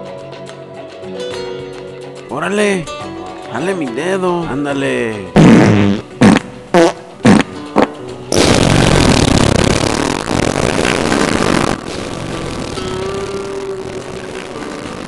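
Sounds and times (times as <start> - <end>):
comic fart sound effects: 5.4 - 15.0
rocket-like rushing blast: 8.3 - 15.0.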